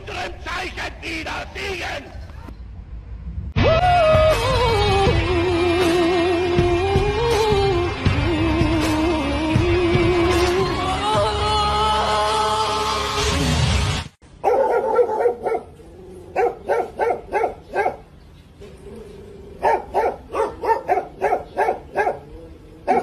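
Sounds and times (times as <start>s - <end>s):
singing over music: 3.6s - 13.3s
dog barking: 14.4s - 18.1s, 19.6s - 23.0s.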